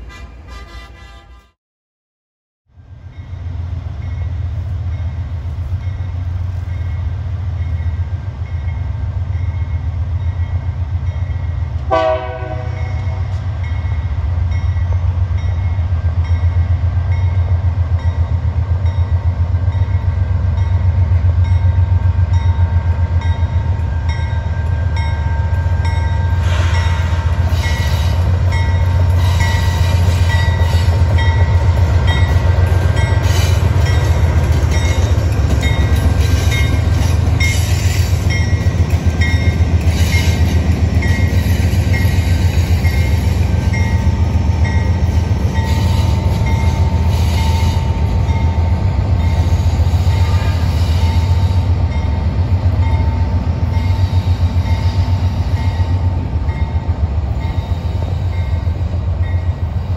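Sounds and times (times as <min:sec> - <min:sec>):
diesel locomotive engine rumble: 0:00.0 - 0:01.6, 0:02.7 - 0:59.9
train horn blast: 0:00.0 - 0:01.6, 0:11.9 - 0:13.4, 0:49.2 - 0:51.8
train wheels on rails: 0:03.1 - 0:59.9.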